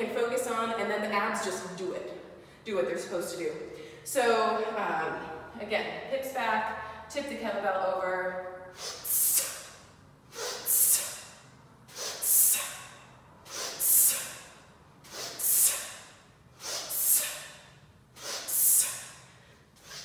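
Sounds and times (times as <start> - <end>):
quick nasal sniff: 8.8 - 19.2, 19.8 - 20.0
sharp breath hiss through teeth: 8.8 - 20.0.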